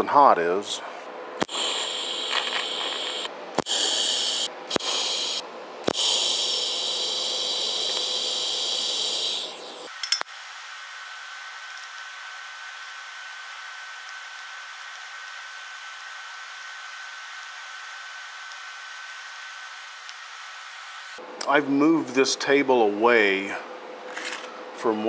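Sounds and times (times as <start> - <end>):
welding arc hissing: 1.4 - 21.2
sharp welder click: 9.9 - 10.4.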